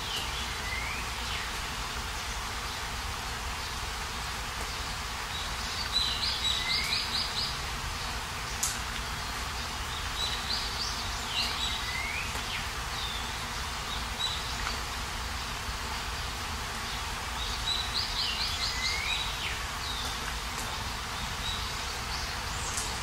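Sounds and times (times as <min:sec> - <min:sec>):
birds chirping: 0:00.0 - 0:23.0
rain falling: 0:00.0 - 0:23.0.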